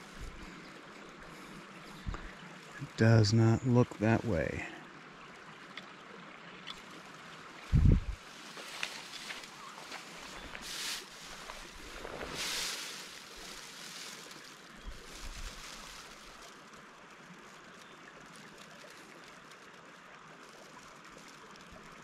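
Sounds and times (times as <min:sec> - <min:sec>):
creek running: 0:00.0 - 0:22.0
soft low bumps: 0:07.7 - 0:14.1.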